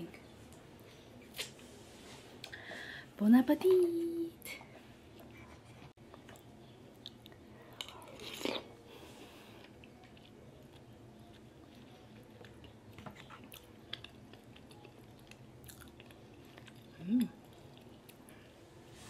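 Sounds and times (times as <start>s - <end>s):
close-up chewing: 9.5s - 18.5s.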